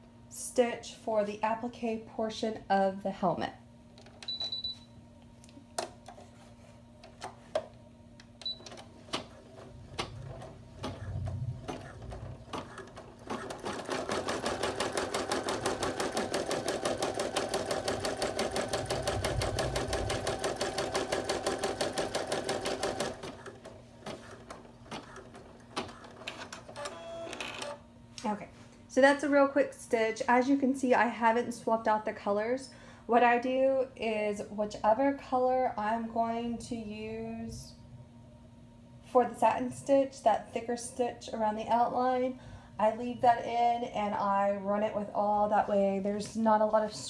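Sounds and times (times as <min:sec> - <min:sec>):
rapid machine needle stitching: 0:11.7 - 0:27.7.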